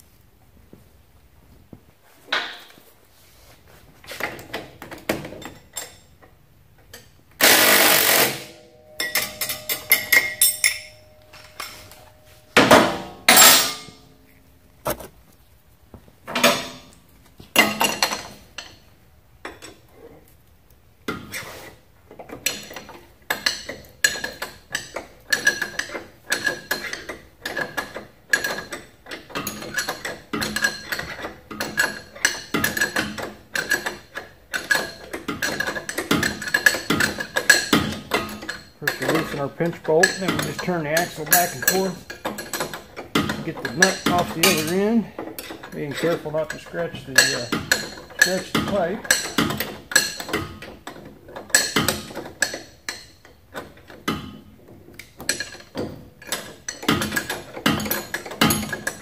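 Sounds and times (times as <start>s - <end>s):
metal tools clinking and knocking: 5.1s - 15.1s, 16.3s - 17.0s, 22.3s - 59.0s
ratchet wrench clicking: 7.4s - 8.5s.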